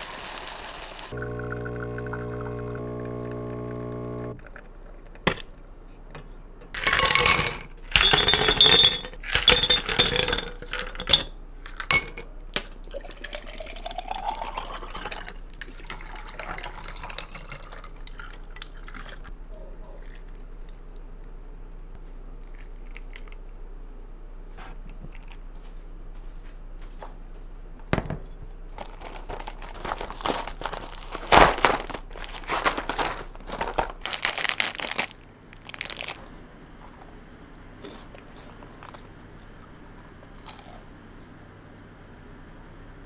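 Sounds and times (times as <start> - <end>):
dishes and glass clinking: 6.7 - 12.3.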